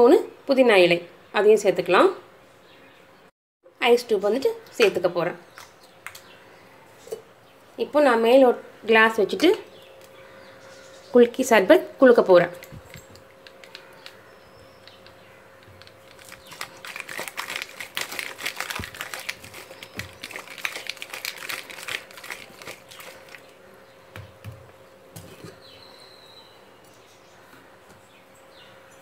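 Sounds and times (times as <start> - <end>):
ice cubes rattling in a glass: 16.1 - 23.4.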